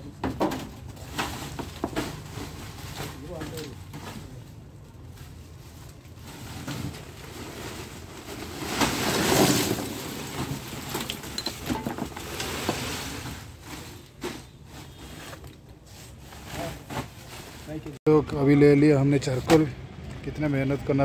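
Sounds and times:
plastic sack rustling: 0.8s - 18.0s
charcoal clattering into sack: 5.9s - 15.4s.

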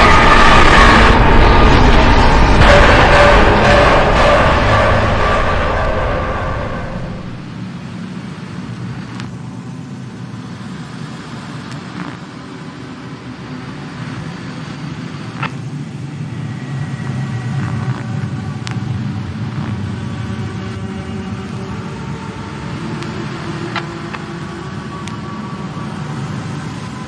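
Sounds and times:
low rumbling drone: 0.0s - 27.0s.

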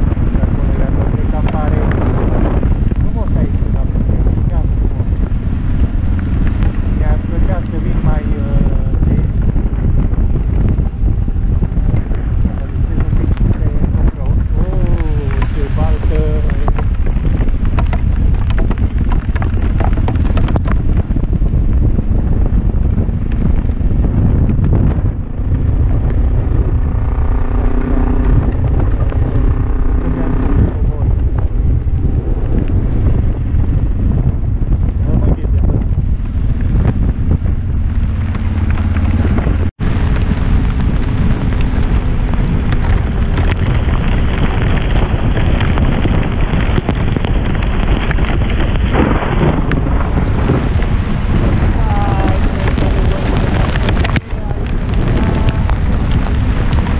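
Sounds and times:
motorcycle engine: 0.0s - 56.9s
wet tyre noise: 0.0s - 56.9s
wind noise on microphone: 0.0s - 56.9s.

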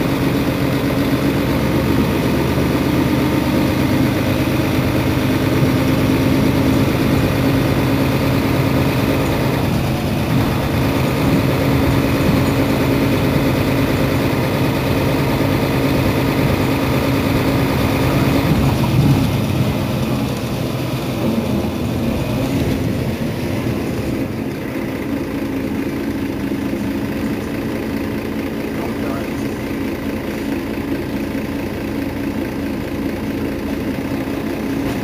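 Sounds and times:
bus engine idling: 0.0s - 35.0s.

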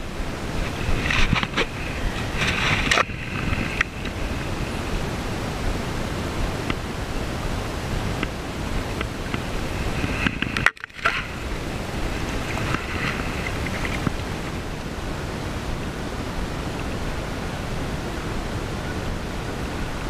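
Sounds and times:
river water flowing: 0.0s - 20.0s.

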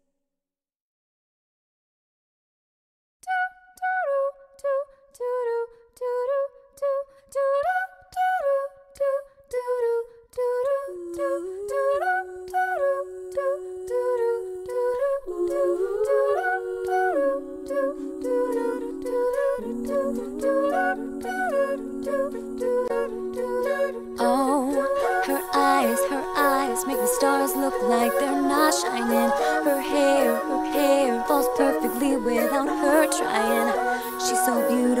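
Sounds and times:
hummed a cappella melody: 3.2s - 35.0s
held lower voices: 10.9s - 35.0s.

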